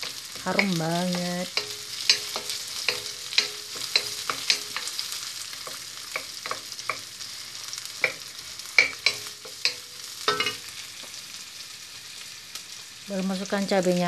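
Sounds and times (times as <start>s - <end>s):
onion and garlic sizzling in oil: 0.0s - 14.0s.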